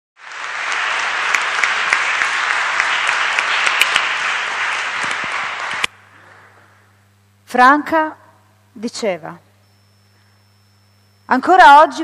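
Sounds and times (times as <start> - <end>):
audience applauding: 0.2 - 5.9.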